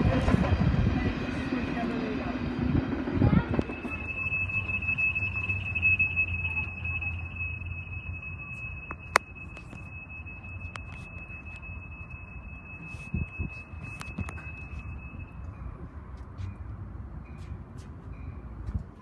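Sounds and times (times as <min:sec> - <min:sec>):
low rumble of train: 0:00.0 - 0:19.0
railroad crossing warning bell: 0:00.2 - 0:19.0.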